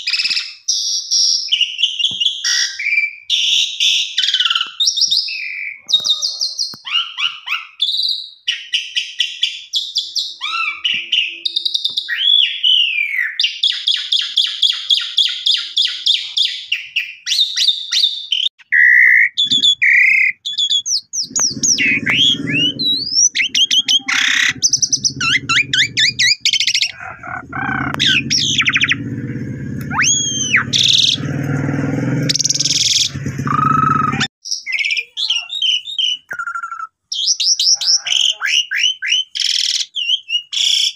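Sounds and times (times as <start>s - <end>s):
starling singing: 19.4s - 40.9s.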